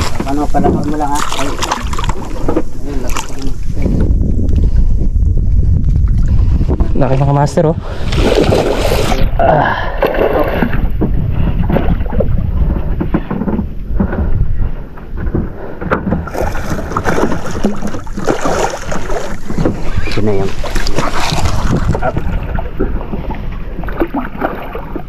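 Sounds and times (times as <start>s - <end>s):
fish splashing in water: 0.0s - 2.4s, 16.2s - 22.7s
boat noise: 0.0s - 25.0s
wind rumble on microphone: 0.0s - 25.0s.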